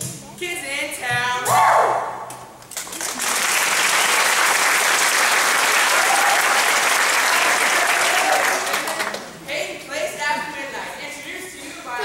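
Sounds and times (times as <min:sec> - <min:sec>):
audience applauding: 0:02.7 - 0:09.4.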